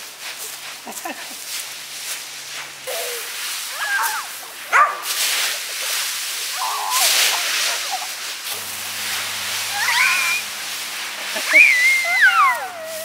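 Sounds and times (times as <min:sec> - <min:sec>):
rake sweeping dry leaves: 0:00.0 - 0:13.0
dog whining: 0:11.5 - 0:13.0.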